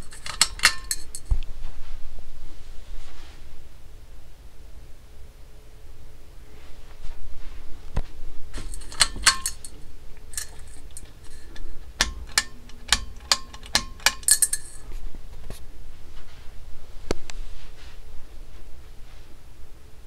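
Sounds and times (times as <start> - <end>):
metallic clinks of fan housing: 0.0 - 1.3, 8.6 - 15.0
faint steady hum: 0.0 - 20.0.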